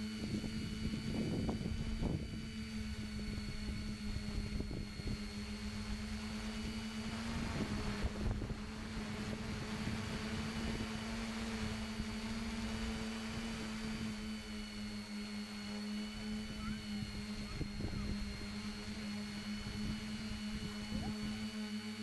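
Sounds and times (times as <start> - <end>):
wind rumble on microphone: 0.0 - 14.6, 16.1 - 21.4
drone motors humming: 0.0 - 22.0.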